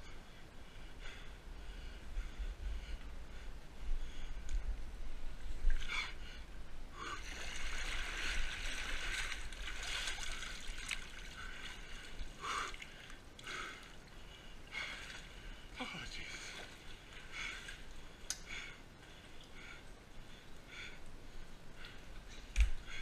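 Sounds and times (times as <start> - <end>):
person breathing hard: 0.0 - 4.5, 11.3 - 15.8, 16.5 - 23.0.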